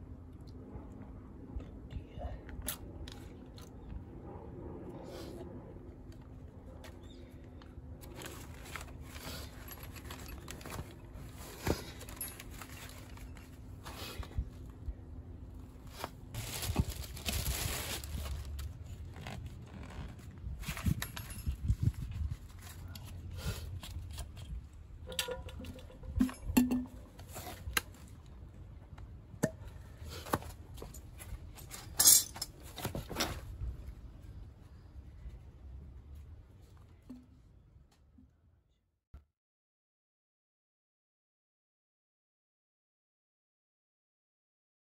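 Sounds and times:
metal parts clinking: 31.7s - 32.6s.

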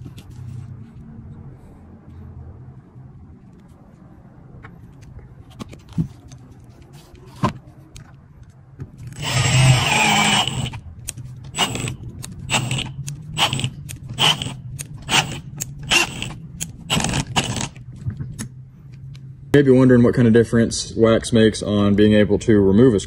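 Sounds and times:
cordless drill driving screw into wood: 9.2s - 10.8s, 11.6s - 17.8s
short drill trigger pulls: 9.2s - 10.8s, 11.6s - 17.8s.

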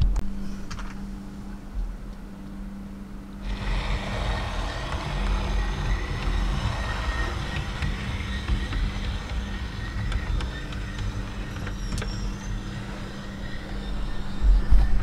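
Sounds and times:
low steady hum: 0.0s - 15.0s
model train rumble and whine: 3.3s - 15.0s.

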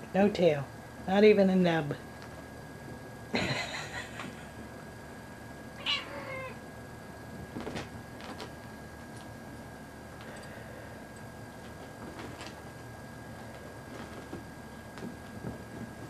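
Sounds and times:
cat meowing: 5.8s - 6.6s.

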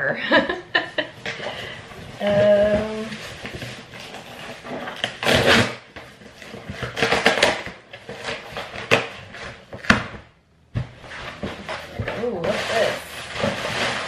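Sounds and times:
package rustling and scraping: 1.2s - 14.0s.

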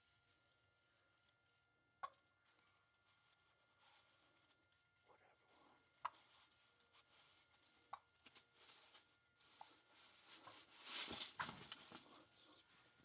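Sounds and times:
fabric rustling: 6.3s - 12.1s.

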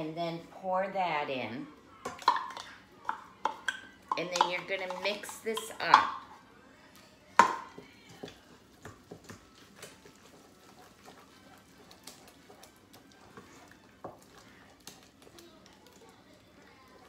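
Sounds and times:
spoon stirring thick mixture: 1.5s - 17.0s
spoon knocking metal bowl: 2.1s - 6.2s.

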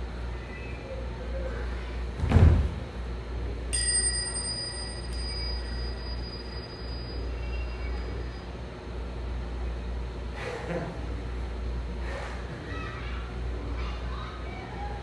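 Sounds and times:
low steady rumble: 1.1s - 12.0s
bell ringing: 3.7s - 8.5s.

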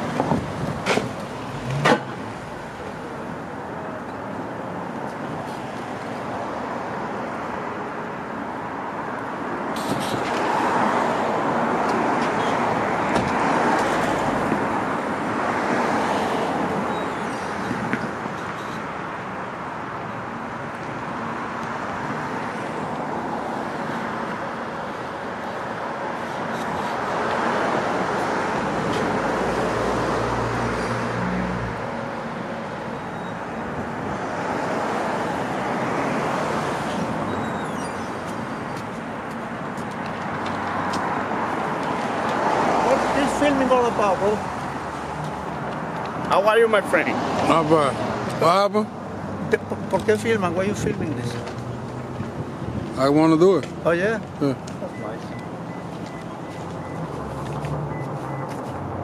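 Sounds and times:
vehicles passing: 0.0s - 59.0s.

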